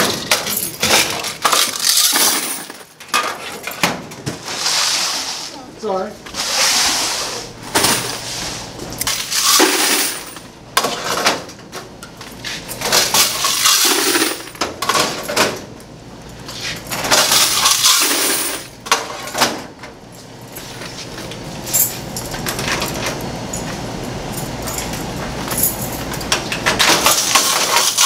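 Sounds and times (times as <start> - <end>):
coins pouring into a bucket: 1.4 - 2.8, 9.1 - 10.4, 13.2 - 14.6, 17.1 - 18.7, 27.0 - 28.0.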